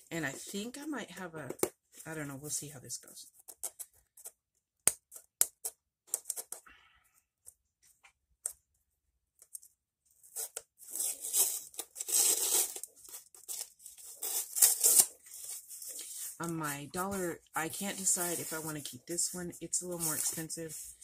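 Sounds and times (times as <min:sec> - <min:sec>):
packing tape ripping: 0:10.3 - 0:15.6.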